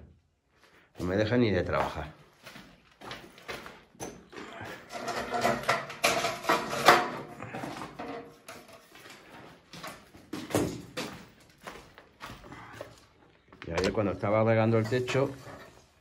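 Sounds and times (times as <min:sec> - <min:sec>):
knocks and clatter: 0:04.8 - 0:08.9.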